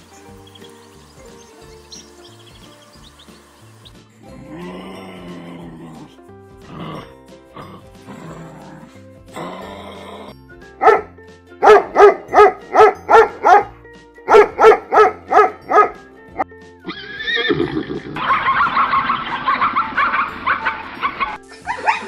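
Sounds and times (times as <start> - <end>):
soft background music: 0.0 - 22.0
dog barking: 10.8 - 16.0, 21.7 - 22.0.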